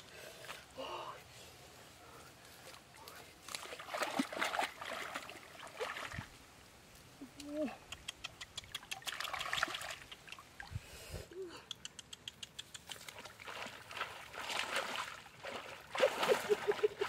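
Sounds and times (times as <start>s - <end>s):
hands splashing in muddy water: 3.4s - 6.3s, 8.9s - 10.5s, 12.8s - 17.0s.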